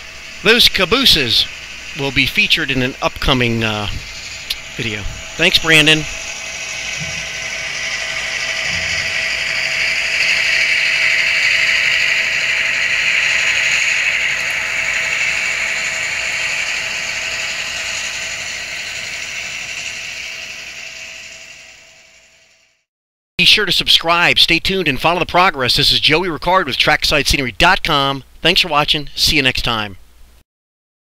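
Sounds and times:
faint steady whine: 0.0s - 22.8s
model train whirring on track: 0.0s - 22.8s.

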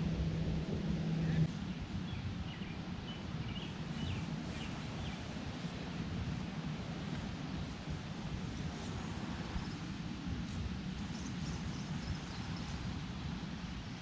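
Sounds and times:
low rumble of background noise: 0.0s - 14.0s
steady low hum: 0.0s - 14.0s.

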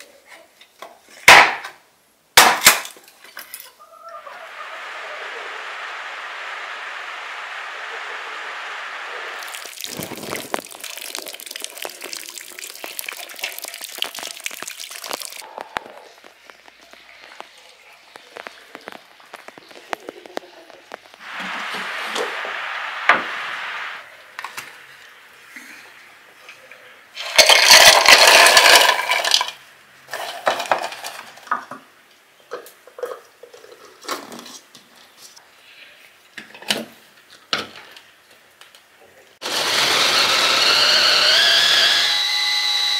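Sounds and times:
rushes of noise: 4.0s - 10.8s, 19.0s - 24.2s
rain dripping off a roof: 9.4s - 22.2s.

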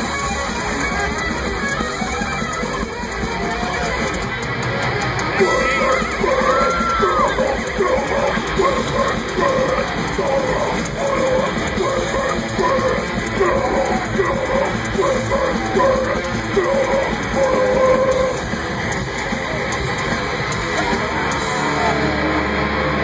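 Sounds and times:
distorted guitars: 0.0s - 23.0s
drums: 0.0s - 23.0s
shouted vocals: 5.4s - 18.6s, 20.6s - 22.6s.

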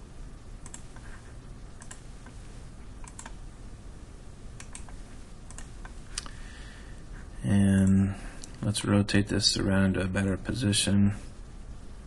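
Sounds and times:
faint steady background noise: 0.0s - 12.0s
computer mouse buttons clicking: 0.6s - 1.1s, 1.8s - 2.4s, 3.0s - 3.4s, 4.6s - 6.0s.

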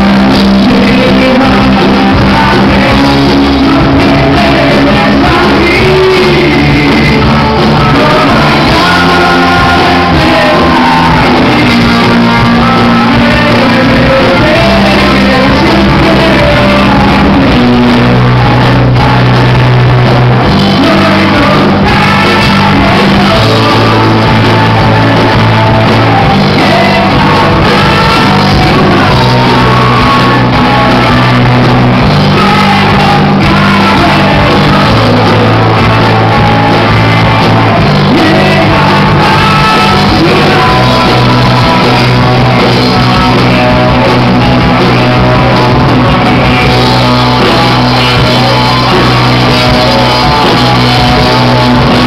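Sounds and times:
heavy held bass notes: 0.0s - 52.0s
live rock band playing: 0.0s - 52.0s
person singing lead vocals: 0.0s - 52.0s.

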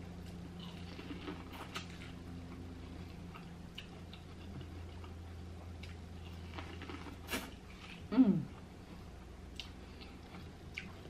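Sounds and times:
steady low hum: 0.0s - 11.0s
corn on the cob being chewed: 0.2s - 8.1s.

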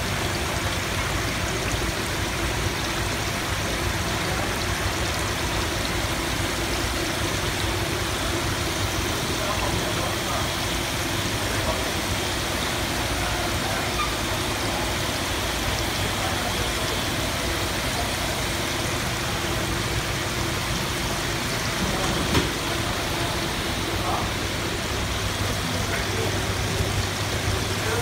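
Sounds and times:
water bubbling in tanks: 0.0s - 28.0s.

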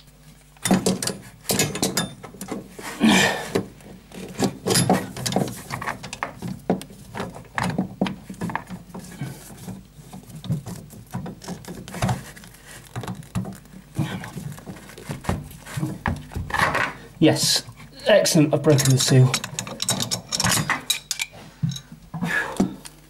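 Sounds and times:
metal wrench clinking and scraping: 18.7s - 21.9s.

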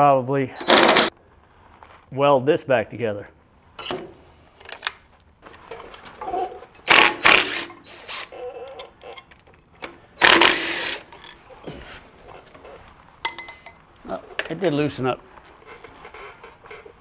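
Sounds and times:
cordless driver bursts: 10.2s - 11.1s.

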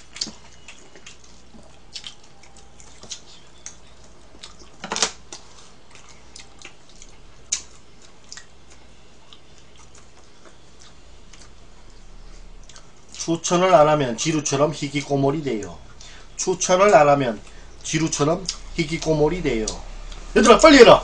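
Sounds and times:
chewing: 0.0s - 13.3s.

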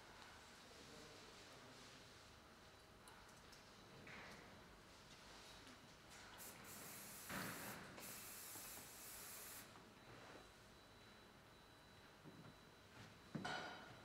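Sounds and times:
aerosol spray hissing: 6.4s - 9.7s.

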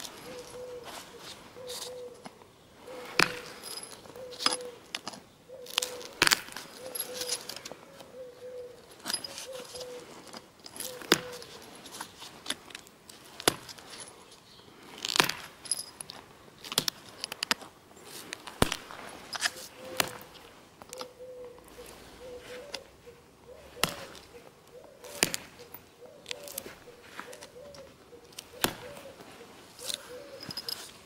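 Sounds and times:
flint knapping clinks: 3.1s - 7.7s, 29.8s - 31.0s.

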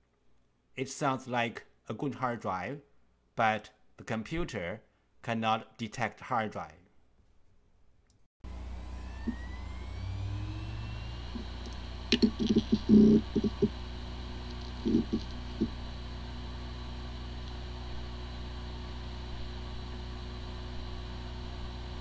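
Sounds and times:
hard drive spin-up whine: 8.4s - 22.0s
hard drive spinning whir: 8.5s - 22.0s.

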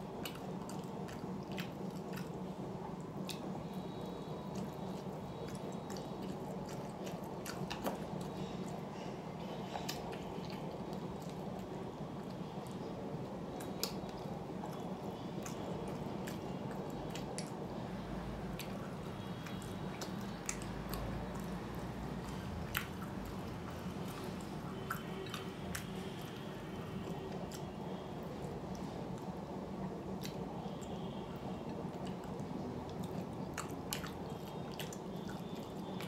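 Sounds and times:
wet chewing and mouth smacks: 0.0s - 29.4s, 30.1s - 31.1s, 31.7s - 36.0s
steady low hum: 0.0s - 36.0s.

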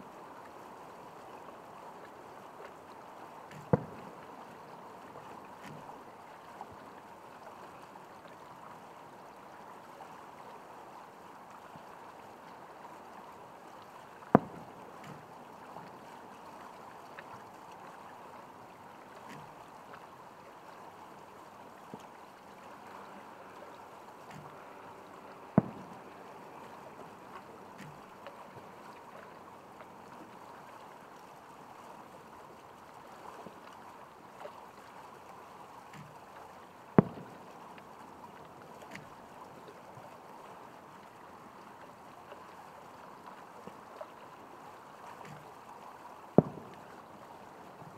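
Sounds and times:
faint hiss of night air: 0.0s - 47.9s
firework bangs: 14.4s - 14.7s, 25.6s - 26.0s.

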